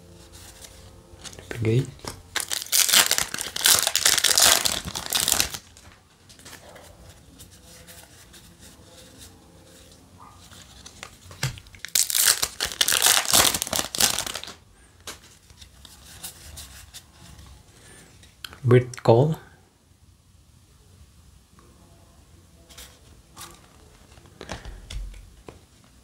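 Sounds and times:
trading cards rustling: 0.4 - 6.8, 7.4 - 15.9
foil wrapper crinkling: 1.2 - 6.6, 10.6 - 15.8.

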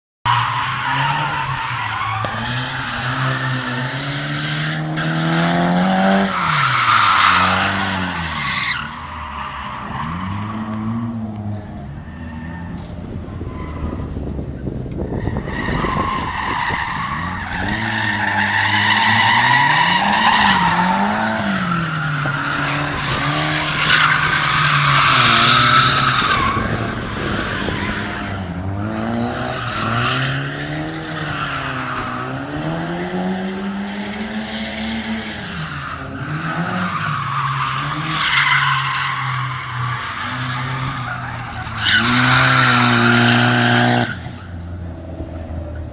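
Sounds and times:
tyres squealing and skidding: 0.3 - 45.9
car engine revving: 0.8 - 45.9.

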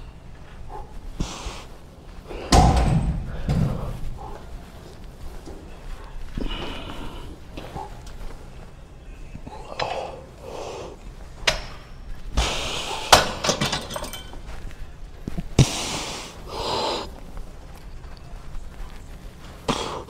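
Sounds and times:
weight stack plates clanking: 12.8 - 14.4.

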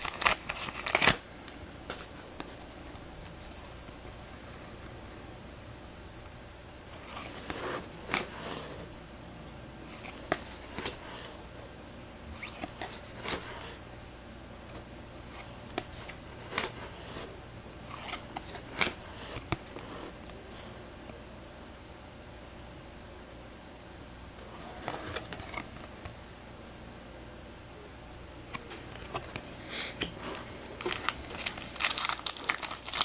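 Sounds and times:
trading cards flicking and rustling: 0.0 - 1.2, 6.9 - 8.8, 9.9 - 11.4, 12.3 - 13.8, 14.7 - 20.4, 28.5 - 33.0.

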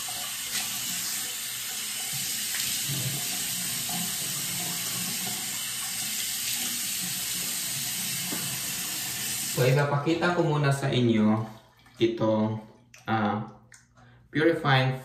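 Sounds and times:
faucet running into sink: 0.0 - 9.9.

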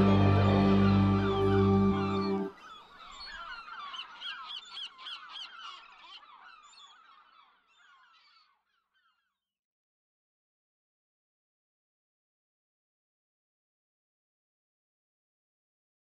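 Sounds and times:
music final chord: 0.0 - 2.5
flock of birds calling: 0.0 - 9.1.

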